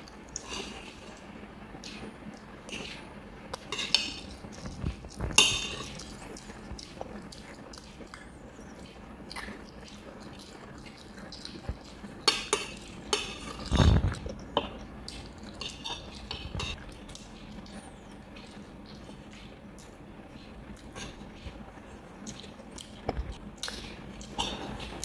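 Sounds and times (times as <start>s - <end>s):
cutlery clinking against a dish: 3.6s - 4.4s, 5.4s - 6.1s, 12.2s - 14.0s, 14.6s - 16.8s.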